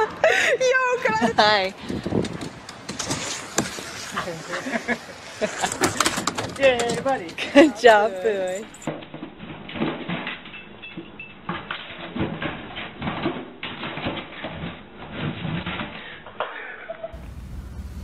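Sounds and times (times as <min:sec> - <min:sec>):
cardboard package scraping: 0:02.1 - 0:07.2.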